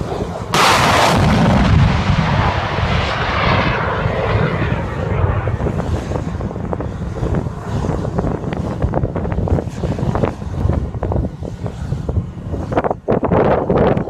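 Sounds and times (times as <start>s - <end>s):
rocket motor roar: 0.0s - 14.0s
missile launch blast: 0.5s - 5.9s.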